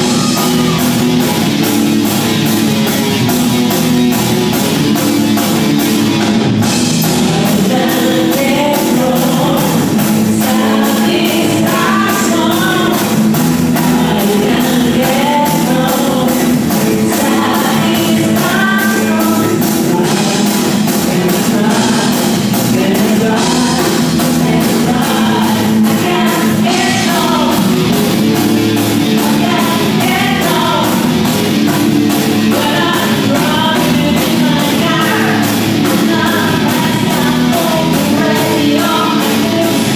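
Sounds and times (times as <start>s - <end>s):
woman singing lead: 0.0s - 1.1s, 6.9s - 39.9s
drum kit steady beat: 0.0s - 39.9s
electric guitar: 0.0s - 39.9s.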